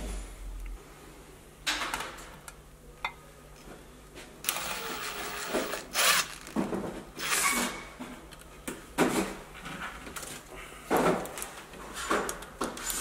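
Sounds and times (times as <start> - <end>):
impact driver driving screws into metal: 4.5 - 6.6.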